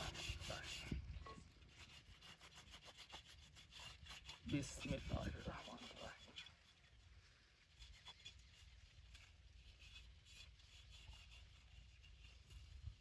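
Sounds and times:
hand rubbing clay pot: 0:00.0 - 0:13.0.

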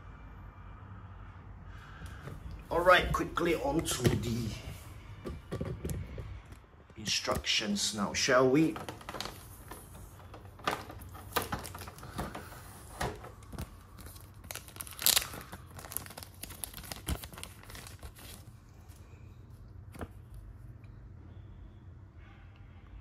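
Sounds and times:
plastic bag crinkling: 0:08.6 - 0:18.5.

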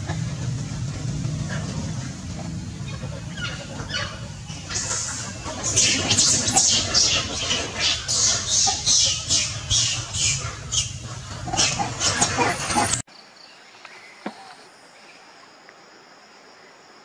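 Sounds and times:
insect drone: 0:00.0 - 0:17.0
monkey screaming: 0:03.2 - 0:13.0.

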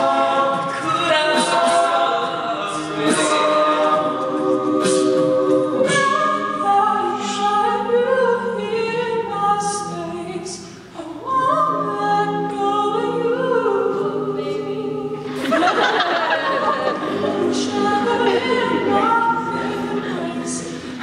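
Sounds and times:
male group singing close harmony: 0:00.0 - 0:07.6, 0:15.3 - 0:21.0
lead vocal: 0:00.0 - 0:21.0.

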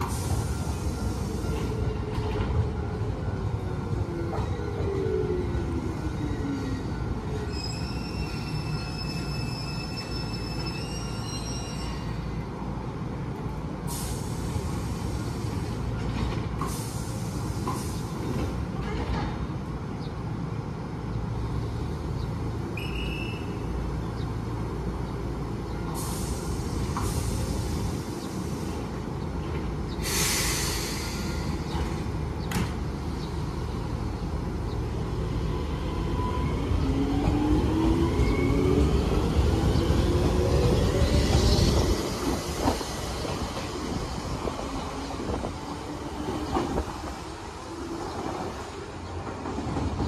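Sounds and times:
air brake hisses: 0:13.9 - 0:15.6, 0:16.6 - 0:18.1, 0:26.0 - 0:27.8, 0:30.0 - 0:31.8
train wheel rumble: 0:24.0 - 0:50.0.

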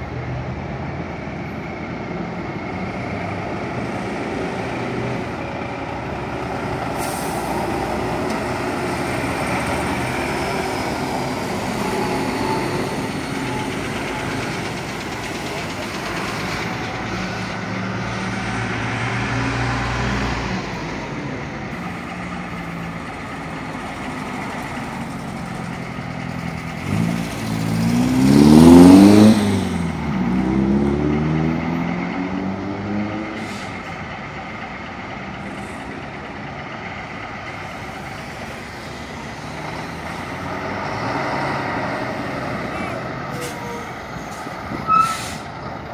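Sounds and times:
truck engines running: 0:00.0 - 0:45.9
lorry engine revving past: 0:26.8 - 0:33.4.

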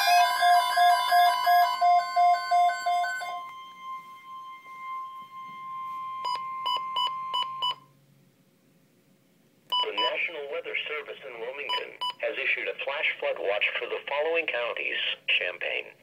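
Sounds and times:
pulsed two-note beeping: 0:00.0 - 0:07.9
steady high alert tone: 0:00.0 - 0:07.9
broadcast voice: 0:09.8 - 0:16.0.

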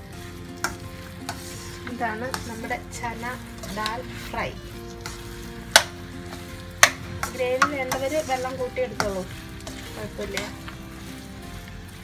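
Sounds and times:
light sizzle: 0:00.0 - 0:12.0
metal spatula scraping a pan: 0:00.6 - 0:12.0.

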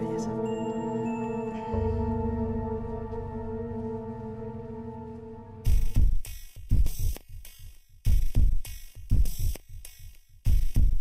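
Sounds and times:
ambient background music: 0:00.0 - 0:06.5.

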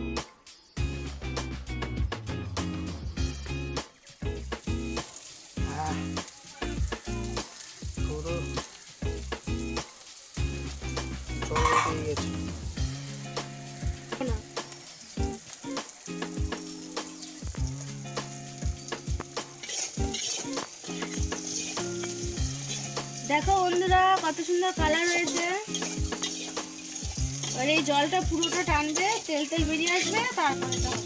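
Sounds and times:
fish sizzling in oil: 0:00.5 - 0:31.0
quick crackles: 0:19.1 - 0:21.8.

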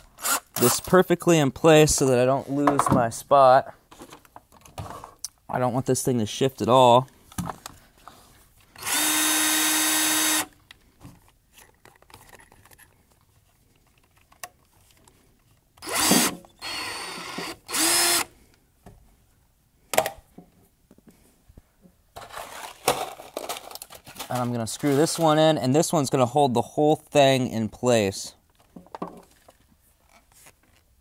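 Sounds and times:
power drill running: 0:00.2 - 0:00.8, 0:08.8 - 0:10.6, 0:15.8 - 0:18.3.

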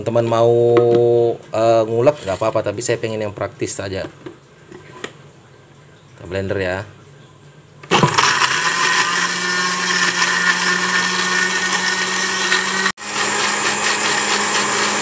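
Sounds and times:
blender grinding: 0:07.8 - 0:15.0.

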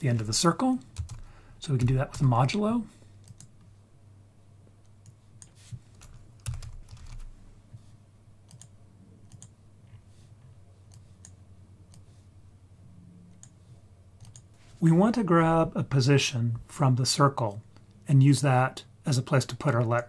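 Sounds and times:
steady low hum: 0:00.0 - 0:20.0
computer keyboard keystrokes: 0:01.0 - 0:01.2, 0:03.2 - 0:03.6, 0:05.0 - 0:07.3, 0:08.5 - 0:08.7, 0:09.3 - 0:09.5, 0:14.2 - 0:14.5.

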